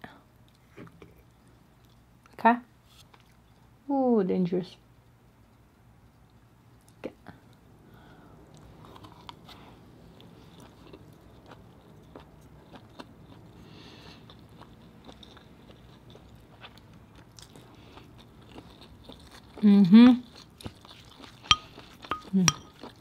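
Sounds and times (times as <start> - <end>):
close-up chewing: 3.0 - 3.8, 8.5 - 23.0.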